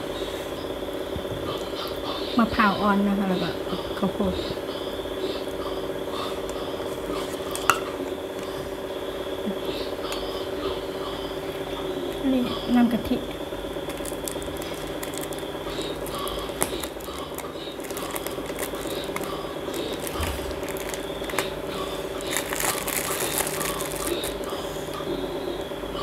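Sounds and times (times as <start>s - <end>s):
steady background hum: 0.0s - 26.0s
plastic bag crinkling: 13.8s - 24.6s.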